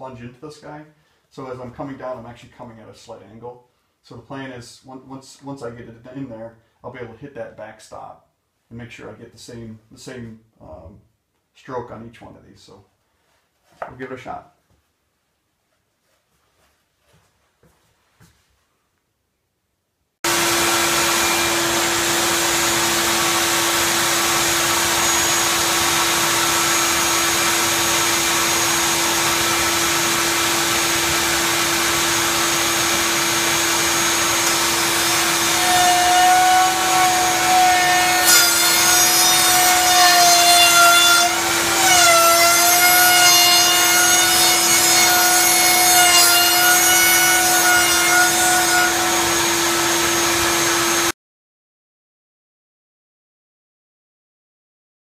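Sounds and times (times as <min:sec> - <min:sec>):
router bit cutting wood whine: 0:20.3 - 0:51.1
router humming: 0:20.3 - 0:51.1.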